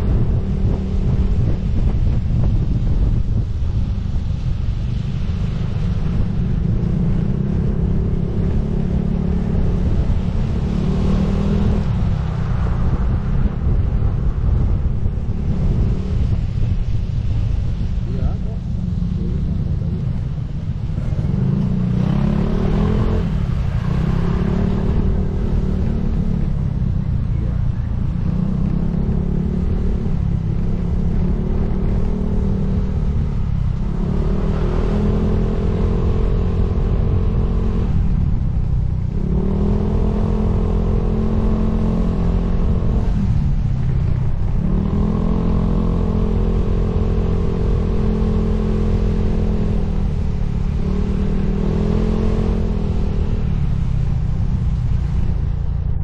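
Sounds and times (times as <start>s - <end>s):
wind rumble on microphone: 0.0s - 56.0s.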